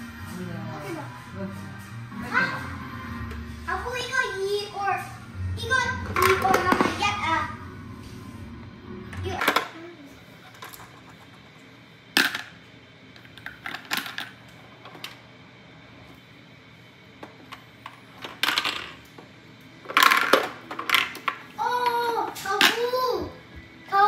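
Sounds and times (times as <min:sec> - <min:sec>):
toy coins clicking and clattering: 0:18.2 - 0:19.0, 0:19.9 - 0:21.4.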